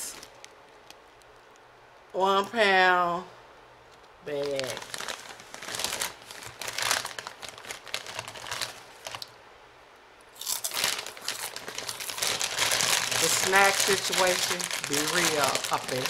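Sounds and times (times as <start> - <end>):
plastic bag crinkling: 4.2 - 9.4, 10.4 - 16.0.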